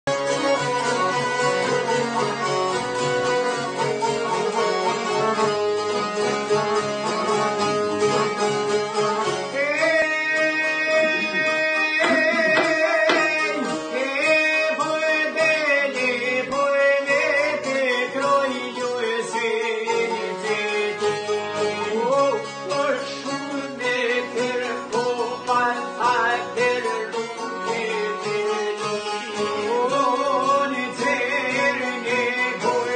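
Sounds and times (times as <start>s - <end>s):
accordion: 0.0s - 32.9s
plucked lutes strumming: 0.1s - 32.9s
man singing: 9.4s - 32.9s.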